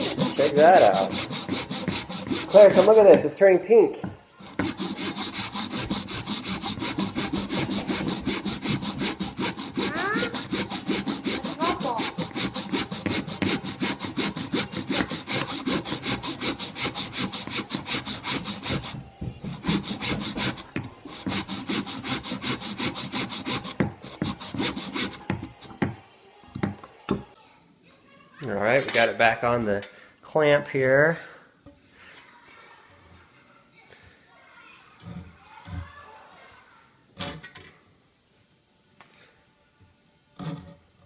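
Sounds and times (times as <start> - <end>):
hand saw cutting: 0.0 - 3.3, 4.4 - 25.8.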